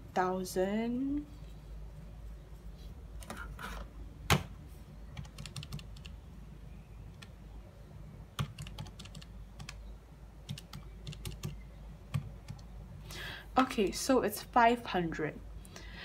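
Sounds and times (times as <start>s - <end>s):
calculator keys clicking: 5.2s - 6.2s, 8.4s - 9.8s, 10.5s - 12.7s.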